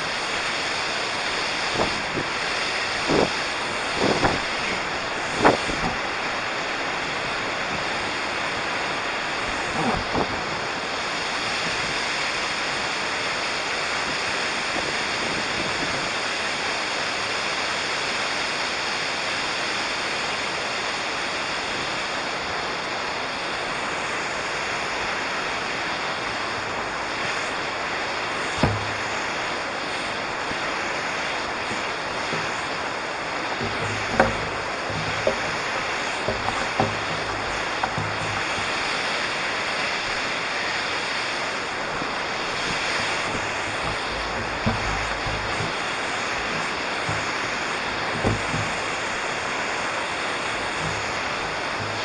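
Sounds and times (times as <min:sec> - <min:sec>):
waterfall rushing: 0:28.5 - 0:52.0
brief knocks: 0:28.6 - 0:29.2, 0:31.6 - 0:32.8, 0:33.4 - 0:39.1, 0:41.9 - 0:48.9, 0:50.7 - 0:52.0.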